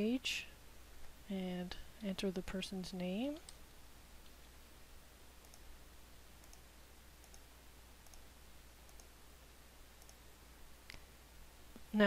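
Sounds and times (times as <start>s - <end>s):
low steady hum: 0.0s - 12.0s
computer mouse clicks: 3.4s - 3.6s, 5.4s - 5.7s, 6.4s - 9.1s, 10.0s - 10.2s.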